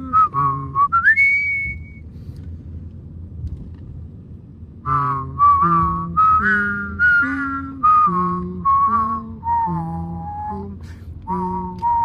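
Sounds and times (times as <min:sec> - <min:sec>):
person whistling: 0:00.0 - 0:02.0, 0:04.9 - 0:10.7, 0:11.3 - 0:12.0
car driving rumble: 0:00.0 - 0:12.0.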